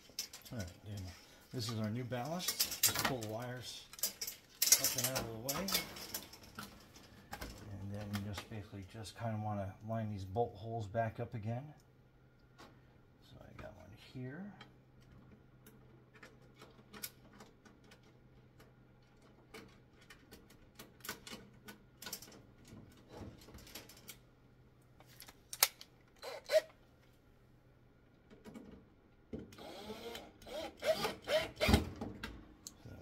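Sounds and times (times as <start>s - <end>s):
metal parts clicking and tapping: 0.0s - 1.0s, 1.6s - 8.4s, 14.6s - 24.2s
cordless drill whirring: 29.6s - 31.7s.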